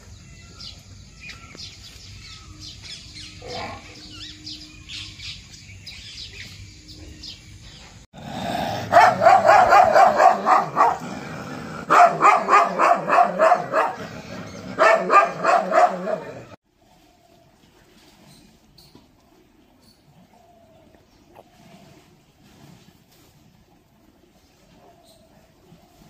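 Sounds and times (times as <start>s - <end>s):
dog barking rapidly: 8.7s - 11.0s, 11.8s - 16.6s.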